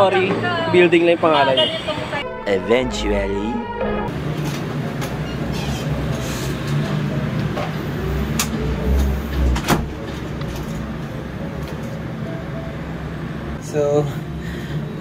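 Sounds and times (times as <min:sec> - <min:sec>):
steady low rumble: 0:02.2 - 0:04.4.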